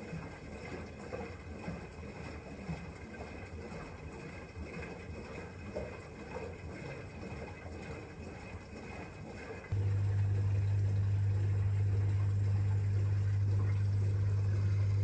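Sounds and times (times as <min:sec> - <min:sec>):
water sloshing inside drum: 0:00.0 - 0:15.0
steady low hum: 0:09.7 - 0:15.0.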